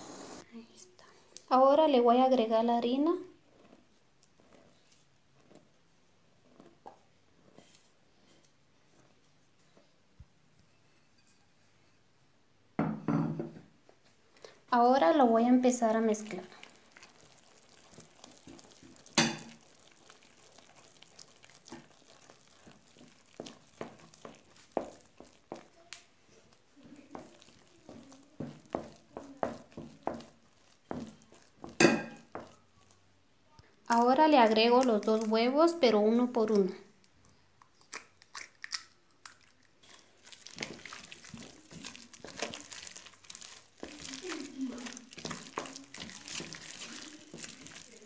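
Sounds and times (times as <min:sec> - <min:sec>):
dough squelching: 0:02.3 - 0:09.6, 0:14.7 - 0:48.0
eggshell cracking: 0:16.4 - 0:26.1, 0:37.6 - 0:48.0.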